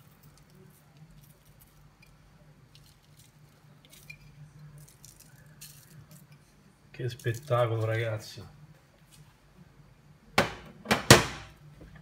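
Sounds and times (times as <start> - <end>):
breadcrumbs pattering: 0.0 - 6.4.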